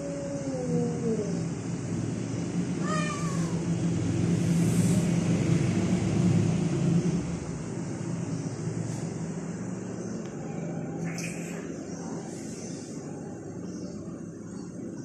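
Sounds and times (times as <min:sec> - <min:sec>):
cat meowing: 0:02.8 - 0:03.7.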